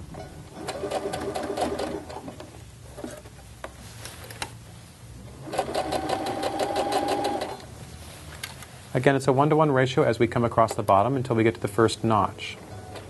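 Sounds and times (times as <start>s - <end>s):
sewing machine stitching: 0.6s - 2.3s, 5.4s - 7.6s.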